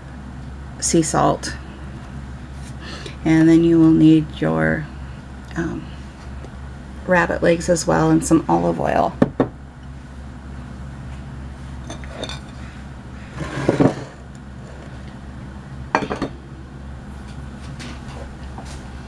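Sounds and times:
steady low hum: 0:00.0 - 0:19.0
dish scraping on board: 0:13.3 - 0:15.0
kitchenware knocks and clinks: 0:16.0 - 0:16.4.

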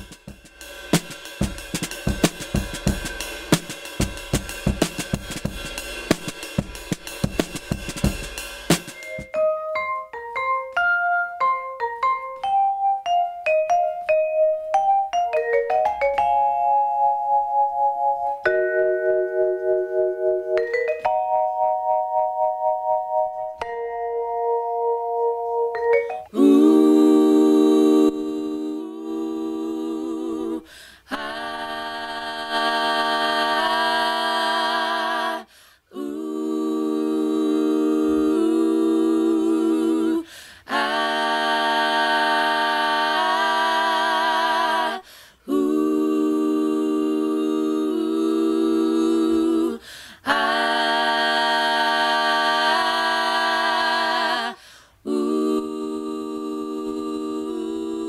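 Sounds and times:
a cappella singing with vibrato: 0:23.6 - 0:58.0.

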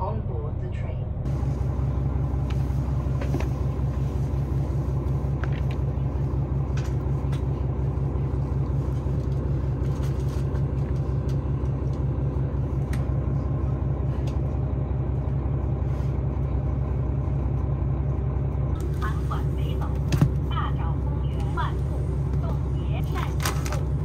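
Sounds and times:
diesel railcar engines idling: 0:00.0 - 0:24.0.

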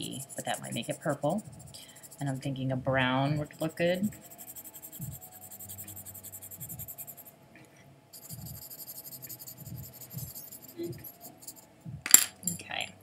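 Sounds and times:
coloured pencil scratching on paper: 0:00.0 - 0:02.7, 0:03.4 - 0:07.3, 0:08.2 - 0:11.6.

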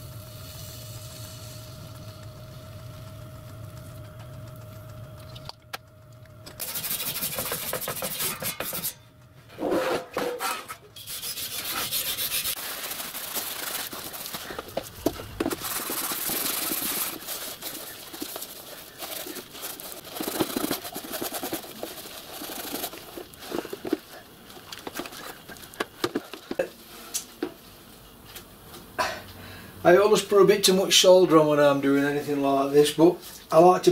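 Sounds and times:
scourer scrubbing metal: 0:06.6 - 0:09.0, 0:09.6 - 0:14.6.

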